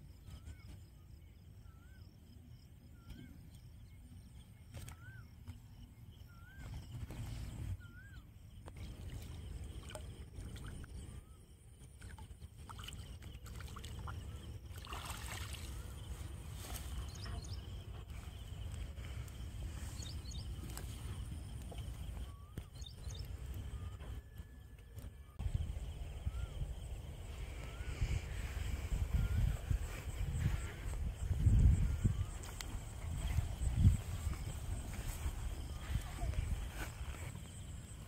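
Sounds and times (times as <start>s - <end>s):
faint bird chirps: 0.0s - 14.6s, 15.3s - 38.0s
fish splashing in water: 12.0s - 16.1s
low wind rumble: 15.7s - 38.0s.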